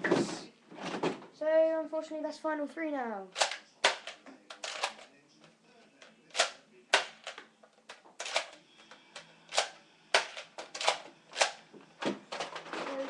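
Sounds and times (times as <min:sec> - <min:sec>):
toy blaster clacks and knocks: 0:03.4 - 0:05.1, 0:06.3 - 0:07.4, 0:08.2 - 0:08.6, 0:09.5 - 0:11.6.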